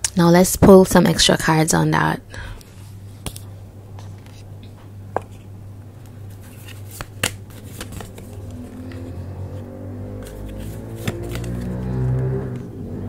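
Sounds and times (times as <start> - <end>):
cards snapping and tapping: 6.5 - 9.1, 10.2 - 11.8.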